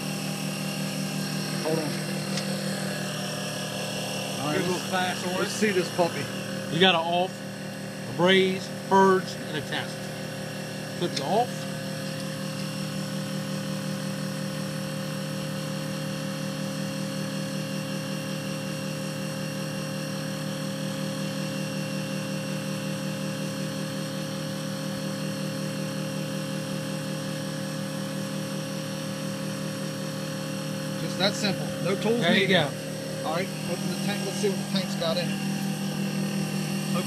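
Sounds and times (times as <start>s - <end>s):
motor and compressor hum: 0.0s - 37.0s.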